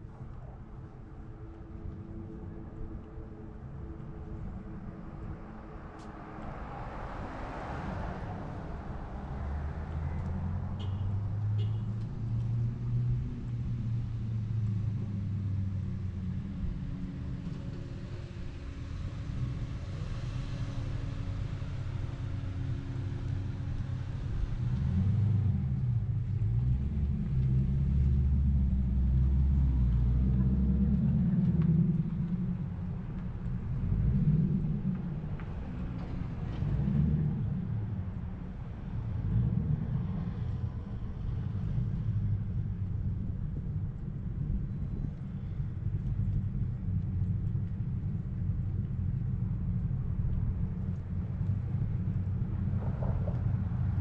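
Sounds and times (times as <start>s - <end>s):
car engines in street traffic: 0.0s - 54.0s.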